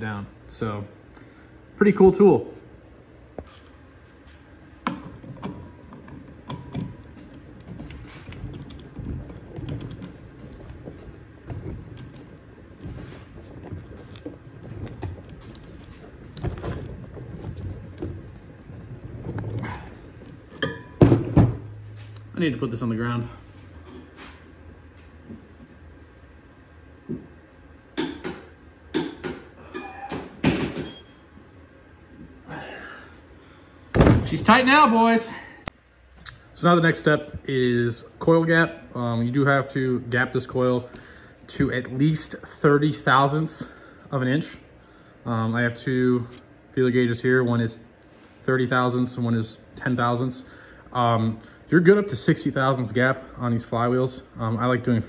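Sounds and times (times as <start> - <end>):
metal tools clanking and knocking: 4.8 - 12.4, 19.2 - 21.6, 29.0 - 31.2.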